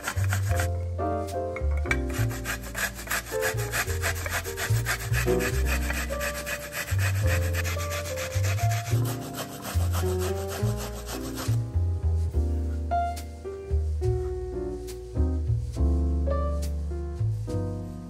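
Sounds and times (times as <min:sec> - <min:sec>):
onion rasping on metal grater: 0:00.0 - 0:00.7, 0:02.1 - 0:11.6
background music: 0:00.0 - 0:18.0.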